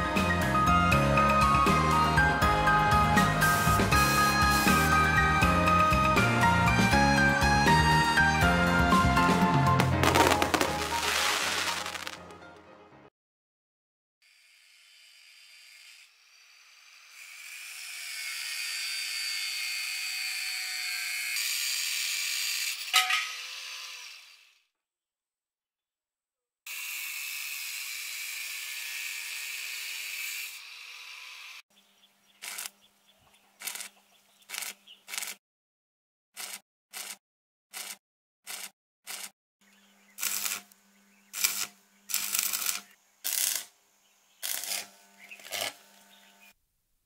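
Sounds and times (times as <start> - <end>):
power tool cutting metal tubing: 2.9 - 6.2, 14.2 - 24.7, 26.7 - 31.7, 32.4 - 32.7, 34.5 - 35.4, 36.4 - 39.3, 40.1 - 46.5
stick welding arc bursts: 3.5 - 5.1, 9.9 - 12.2, 32.4 - 32.8, 34.5 - 35.4, 40.2 - 43.8, 44.4 - 46.0.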